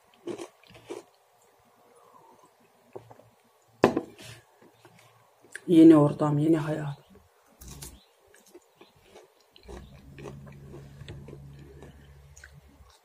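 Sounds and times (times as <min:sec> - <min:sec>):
low steady hum: 0:00.1 - 0:13.0
wet chewing mouth clicks: 0:08.4 - 0:13.0.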